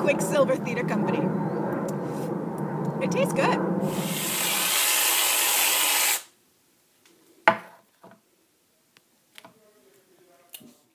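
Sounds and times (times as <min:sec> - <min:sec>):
aerosol can hissing: 0:03.9 - 0:06.3.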